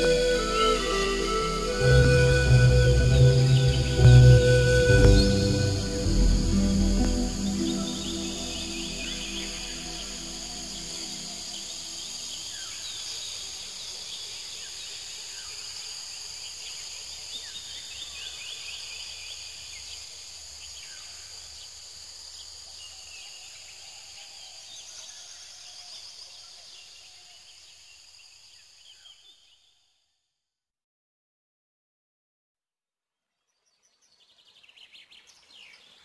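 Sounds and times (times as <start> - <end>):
bird chirps: 0.0 - 12.4
high-pitched insect hum: 0.0 - 13.1.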